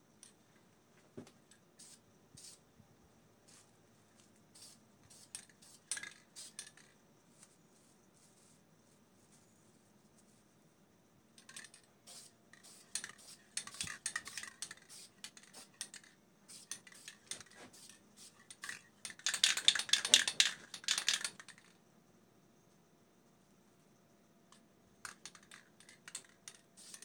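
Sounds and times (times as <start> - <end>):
spray paint can rattling: 4.6 - 6.9, 11.4 - 21.7, 25.0 - 27.0.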